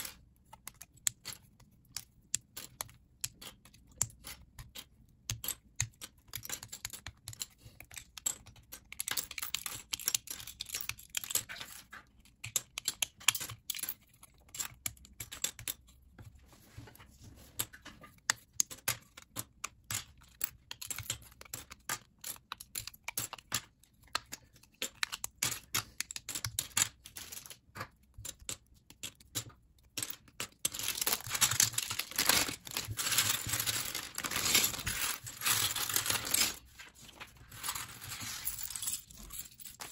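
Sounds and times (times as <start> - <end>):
plastic bricks clicking and snapping: 0.0 - 15.8, 17.6 - 36.6
plastic bag crinkling: 30.7 - 38.8.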